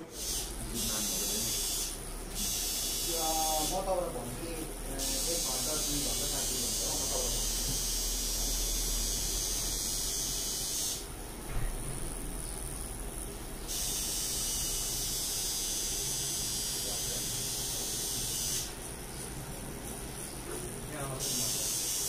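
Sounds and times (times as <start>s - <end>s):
tattoo machine buzzing: 0.0s - 22.0s.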